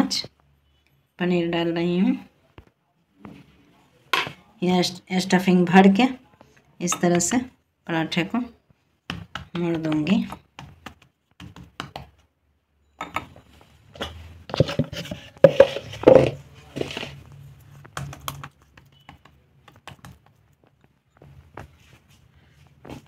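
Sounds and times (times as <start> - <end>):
fingers tapping dough on a board: 9.1 - 12.2.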